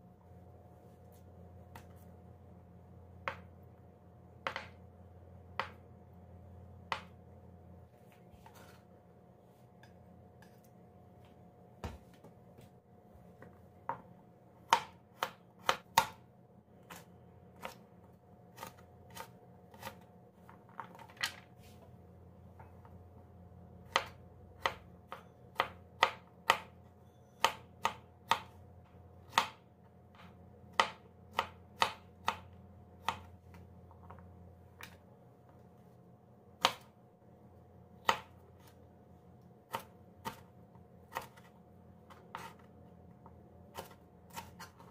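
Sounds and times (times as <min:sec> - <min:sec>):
knife chopping on cutting board: 0:04.4 - 0:04.8, 0:13.8 - 0:16.2, 0:18.6 - 0:20.1, 0:23.9 - 0:26.7, 0:29.3 - 0:32.4, 0:36.6 - 0:36.9, 0:38.0 - 0:38.7, 0:39.7 - 0:40.5, 0:41.1 - 0:41.5, 0:42.1 - 0:42.7, 0:43.7 - 0:44.9.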